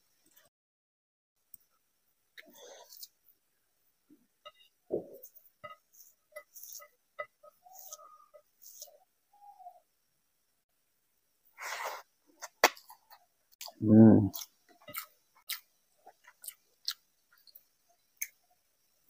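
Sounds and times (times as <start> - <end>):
person humming: 13.8 - 14.4.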